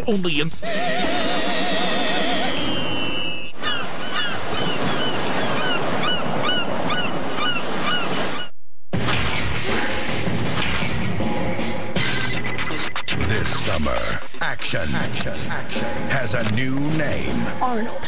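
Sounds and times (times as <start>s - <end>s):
falling whistle: 2.2s - 3.6s.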